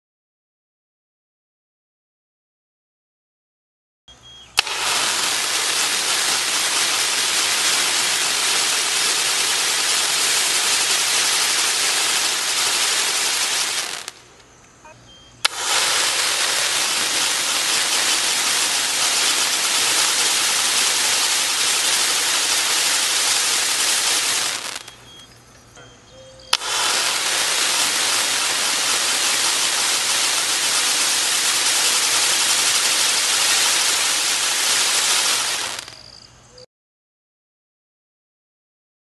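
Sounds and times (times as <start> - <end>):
firework igniting with sharp crack: 4.5 - 14.4, 15.4 - 25.2, 26.5 - 36.1
loud hiss of spraying sparks: 4.6 - 14.3, 15.4 - 25.1, 26.5 - 36.0.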